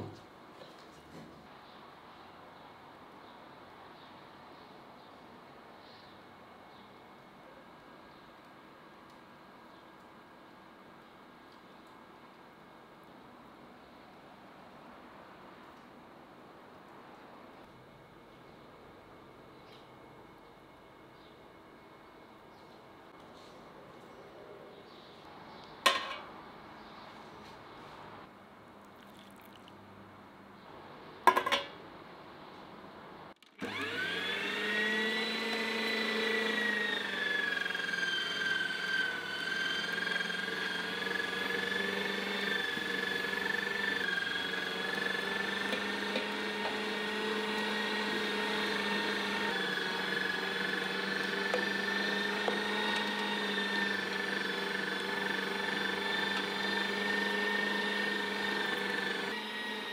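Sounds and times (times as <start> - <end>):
appliance motor whining: 33.5 - 59.9.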